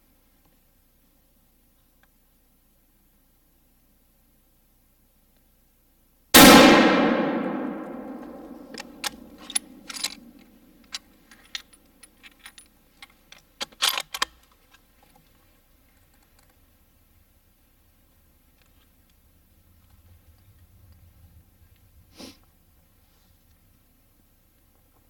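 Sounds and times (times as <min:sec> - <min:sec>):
rifle shot echoing: 0:06.4 - 0:10.0.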